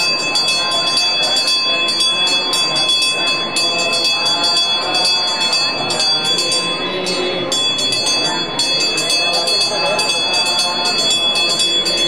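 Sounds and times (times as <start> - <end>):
group of voices chanting: 0.0 - 12.0
hand bell rung rapidly: 0.0 - 12.0.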